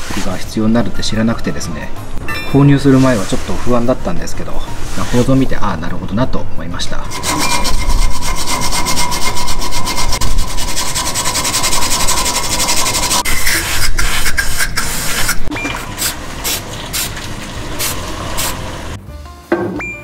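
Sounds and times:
wire brush scrubbing rust: 0:07.0 - 0:18.7.

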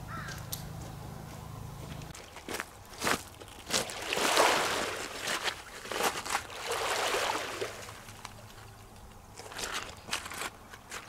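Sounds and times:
waves washing over pebbles: 0:03.7 - 0:08.1.

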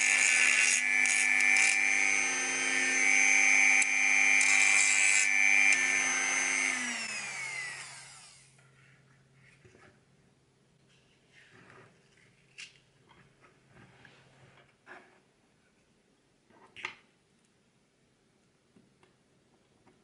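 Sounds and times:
rotary tool whining: 0:00.0 - 0:08.6.

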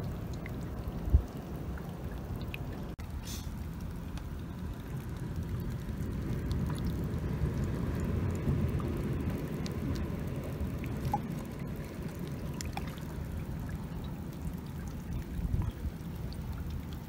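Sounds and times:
underwater sloshing rumble: 0:00.0 - 0:17.0
faint ticks: 0:03.8 - 0:05.8.

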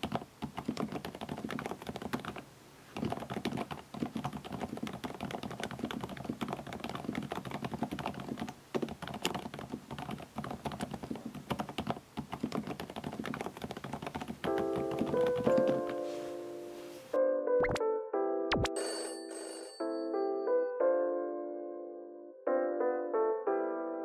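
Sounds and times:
typing on mechanical keyboard: 0:00.0 - 0:02.4, 0:03.0 - 0:16.0.

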